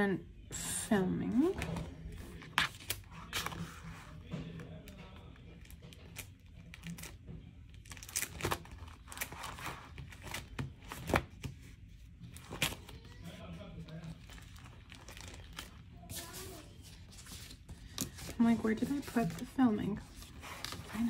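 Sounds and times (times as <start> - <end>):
paper sticker sheets rustling: 1.3 - 21.0.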